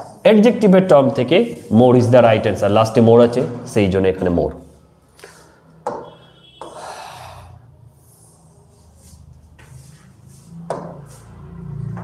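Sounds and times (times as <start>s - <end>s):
pen tapping on whiteboard: 5.8s - 6.8s, 10.7s - 11.0s.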